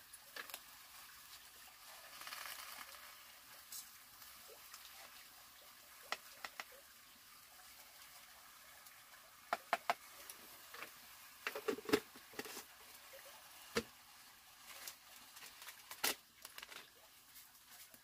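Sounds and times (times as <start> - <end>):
kitchen items set down on wooden shelf: 11.5 - 12.6.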